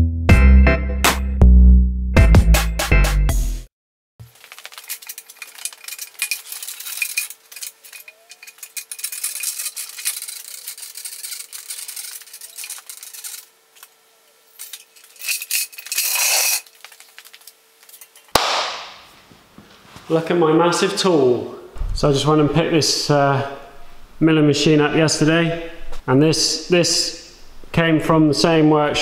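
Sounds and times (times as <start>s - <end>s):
pallet truck rattling and scraping: 4.3s - 13.5s.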